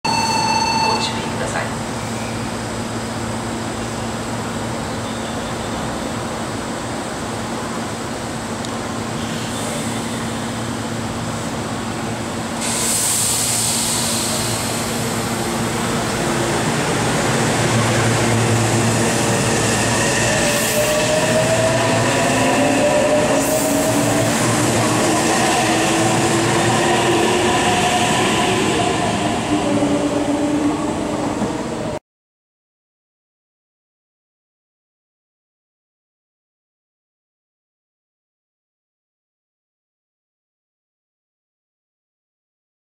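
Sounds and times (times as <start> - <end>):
electric train hum: 0.1 - 32.0.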